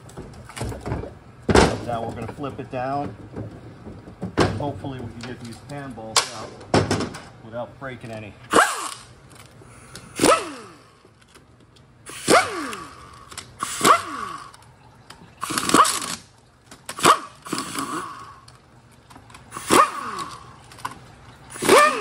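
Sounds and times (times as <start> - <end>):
pneumatic impact wrench bursts: 8.5 - 9.1, 9.8 - 11.0, 12.0 - 14.6, 15.4 - 16.3, 16.9 - 18.5, 19.5 - 20.5, 21.5 - 22.0.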